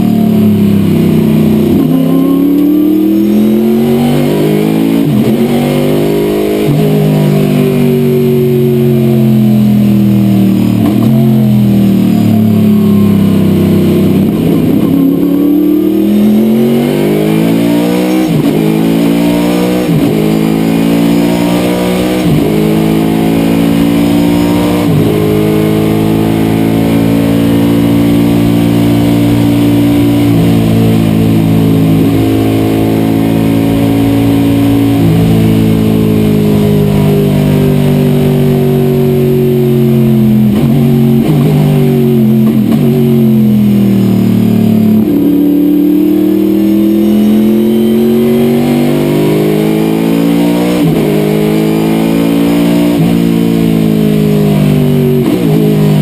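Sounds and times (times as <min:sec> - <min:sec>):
race car engine accelerating: 0:00.0 - 0:56.0.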